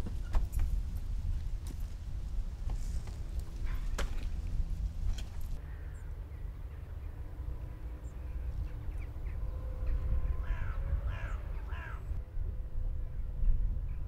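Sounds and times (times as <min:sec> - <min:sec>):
crow cawing: 0:05.6 - 0:06.1, 0:10.4 - 0:12.1.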